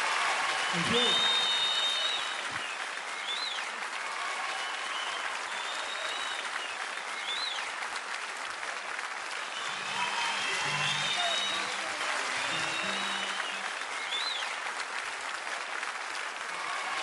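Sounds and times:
audience applauding: 0:00.0 - 0:17.0
high whistled notes: 0:09.6 - 0:14.5.

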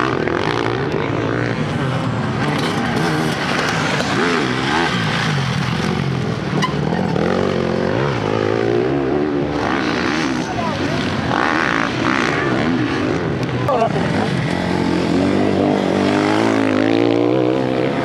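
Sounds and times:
motorcycle engines revving: 0:00.0 - 0:18.0.

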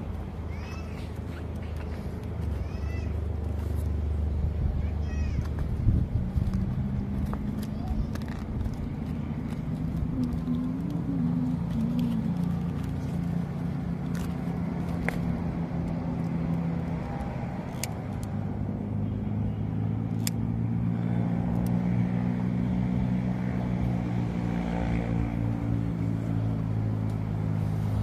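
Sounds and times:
vehicle engine running: 0:00.0 - 0:28.0.

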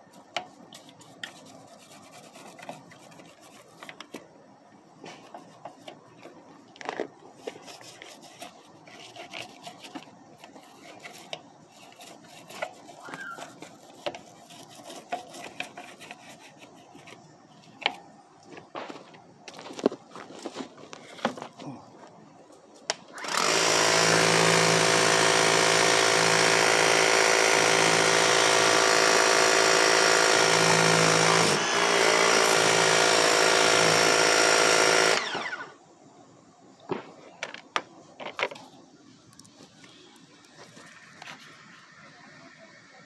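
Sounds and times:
pressure washer running: 0:23.2 - 0:35.6.

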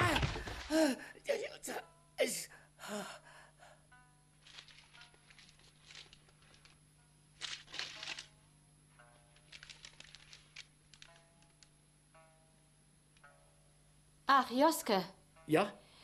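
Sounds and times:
paper being crumpled: 0:04.4 - 0:06.8, 0:07.4 - 0:08.3, 0:09.4 - 0:11.6.

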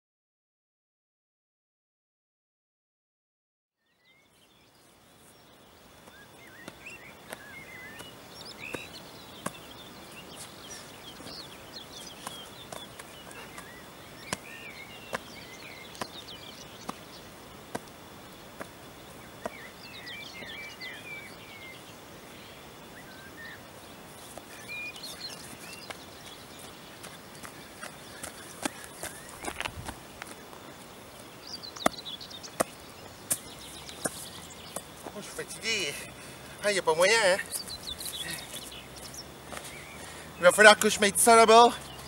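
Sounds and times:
birds chirping and singing: 0:03.9 - 0:42.0
footsteps on stony ground: 0:06.0 - 0:21.0, 0:24.0 - 0:40.9.

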